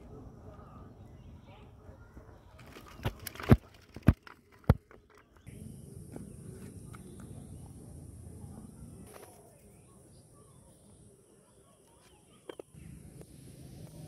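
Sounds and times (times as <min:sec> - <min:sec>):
steady high hiss: 0:12.8 - 0:14.0.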